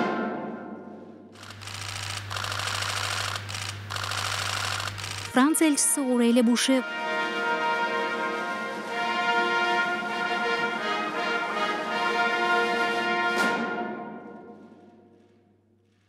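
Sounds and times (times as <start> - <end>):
orchestral music with brass: 6.8 - 14.6.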